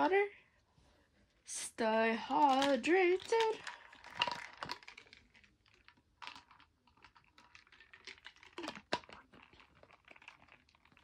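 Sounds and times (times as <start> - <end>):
small objects clicking and tapping: 2.3 - 10.5.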